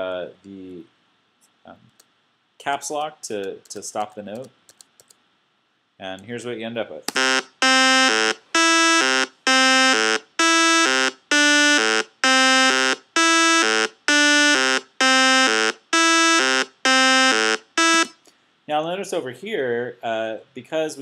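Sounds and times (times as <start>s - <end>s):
buzzy square-wave synth melody: 7.1s - 18.1s.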